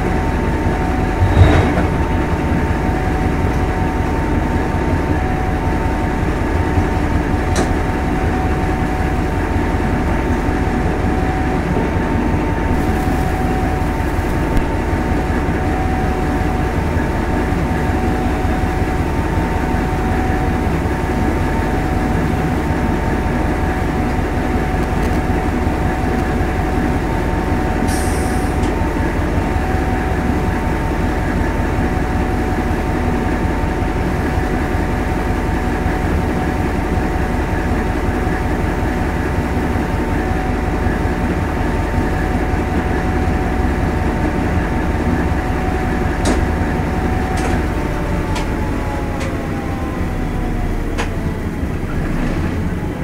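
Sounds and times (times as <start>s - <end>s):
constant whine: 0.0s - 53.0s
train engine and wheels rumbling: 0.0s - 53.0s
heavy thump: 1.2s - 2.2s.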